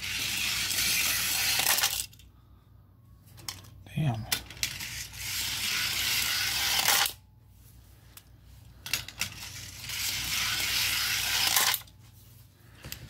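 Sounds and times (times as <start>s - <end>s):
toy cars rolling on plastic ramp: 0.0s - 2.2s, 4.3s - 7.2s, 8.8s - 11.9s.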